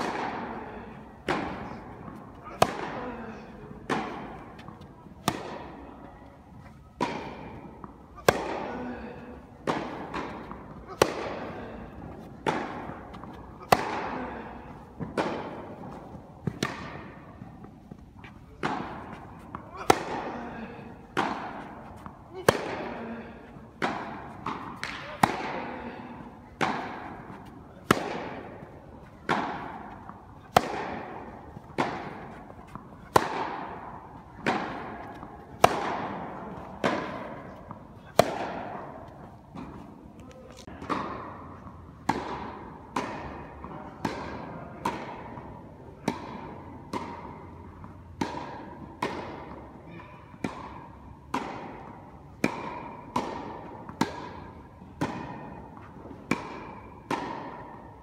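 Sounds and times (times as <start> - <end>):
racquet hitting tennis ball: 0.0 - 6.1, 6.8 - 58.0.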